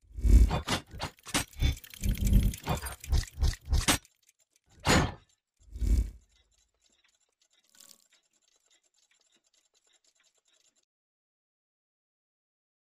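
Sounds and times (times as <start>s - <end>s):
faint rapid ticking: 1.5s - 10.8s.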